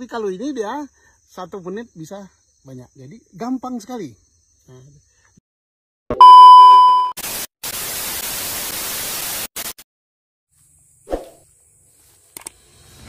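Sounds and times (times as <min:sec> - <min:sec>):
test-tone beep: 0:06.2 - 0:07.2
tv static hiss: 0:07.2 - 0:09.8.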